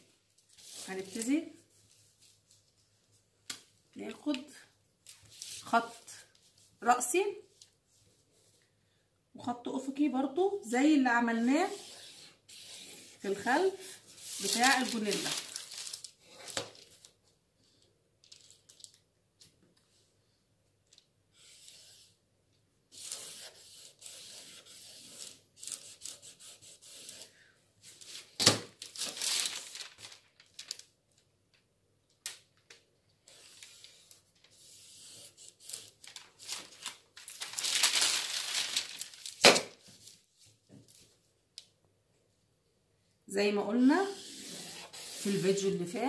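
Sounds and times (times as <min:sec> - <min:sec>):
paper rustling and crinkling: 0:11.7 - 0:17.2, 0:18.2 - 0:19.0, 0:27.8 - 0:31.2, 0:32.3 - 0:41.2.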